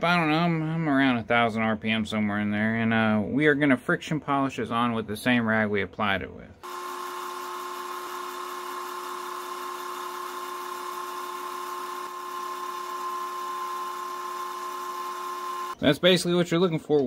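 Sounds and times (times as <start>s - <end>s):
wood lathe motor whine: 6.6s - 15.8s.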